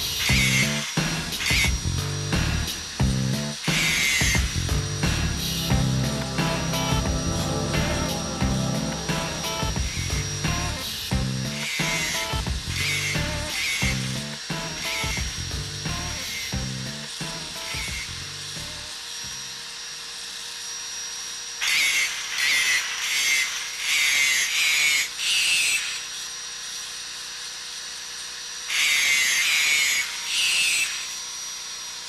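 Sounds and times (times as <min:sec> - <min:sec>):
power grinder grinding metal: 0:00.0 - 0:32.0
low musical notes: 0:04.7 - 0:11.6.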